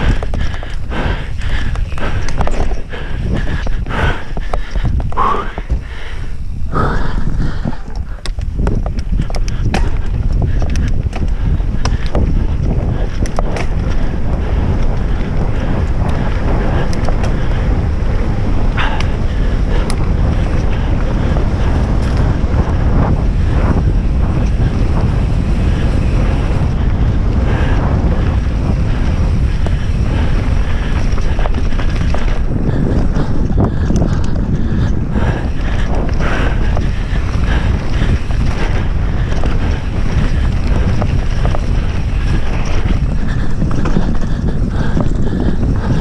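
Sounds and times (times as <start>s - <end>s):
bike clicks and rattles: 0.0s - 46.0s
wind buffeting microphone: 0.0s - 46.0s.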